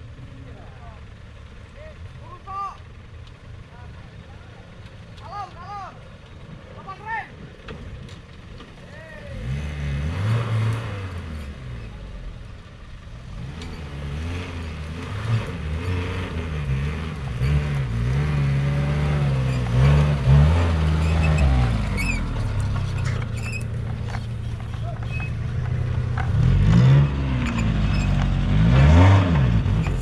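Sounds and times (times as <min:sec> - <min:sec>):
off-road vehicle engine revving: 0:00.0 - 0:30.0.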